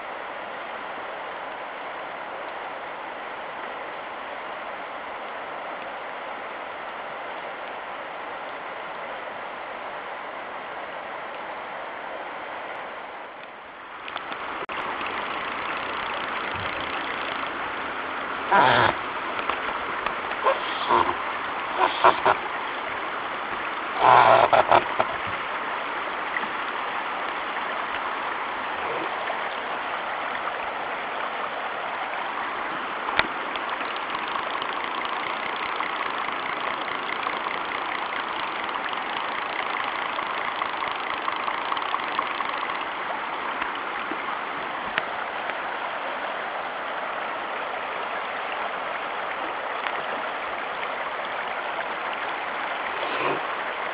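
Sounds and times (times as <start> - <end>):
rain falling on a river: 0.0 - 53.9
river current running: 0.0 - 53.9
short loud calls: 18.5 - 19.0, 20.4 - 21.2, 21.8 - 22.4, 24.0 - 25.1.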